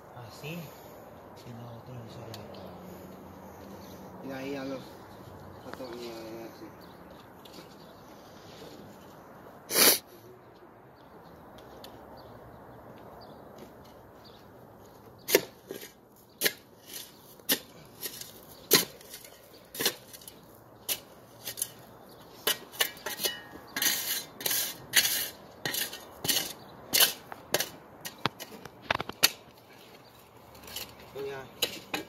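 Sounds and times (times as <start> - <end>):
spade digging into gravelly soil: 15.2 - 29.5, 30.6 - 32.0.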